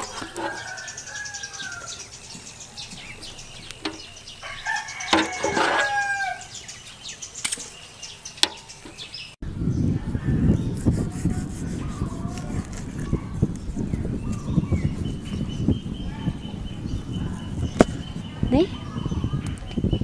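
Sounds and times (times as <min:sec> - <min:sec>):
rooster crowing: 0:00.0 - 0:02.1, 0:04.3 - 0:06.6
chickens calling: 0:00.0 - 0:09.4.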